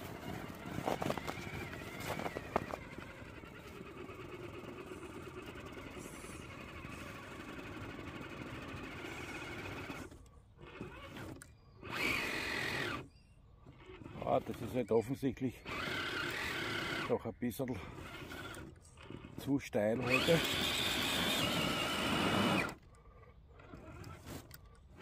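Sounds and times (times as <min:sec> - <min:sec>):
footsteps in snow: 0:00.0 - 0:03.0
electric motor running: 0:00.0 - 0:25.0.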